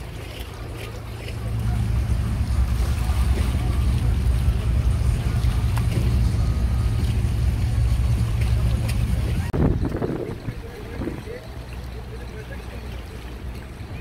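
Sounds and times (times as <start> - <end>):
boat engine rumbling: 0.0 - 14.0
water wash: 0.0 - 14.0
wind noise: 9.3 - 11.3.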